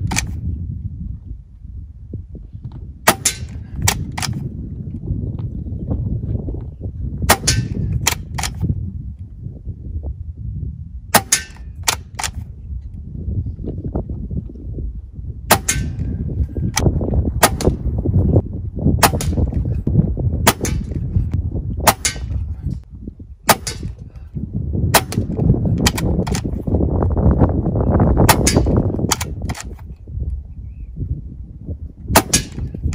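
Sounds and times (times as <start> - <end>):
air rifle shots cracking: 0.0 - 0.4, 3.1 - 4.5, 7.3 - 8.7, 11.1 - 12.5, 15.5 - 16.2, 16.8 - 17.8, 19.0 - 19.7, 20.4 - 21.2, 21.8 - 22.6, 23.5 - 24.2, 24.9 - 26.6, 28.2 - 29.8, 32.1 - 32.9
cocking lever clicks: 0.0 - 0.4, 3.8 - 4.4, 8.0 - 8.6, 11.4 - 12.4, 25.1 - 26.6, 28.5 - 29.9
low rumble: 0.0 - 32.9.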